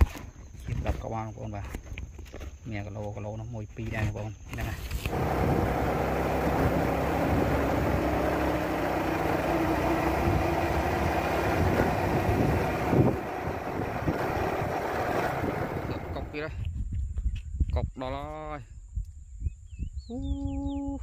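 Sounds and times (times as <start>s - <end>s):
road noise on dirt road: 0.0s - 16.7s
small vehicle engine running: 4.9s - 16.4s.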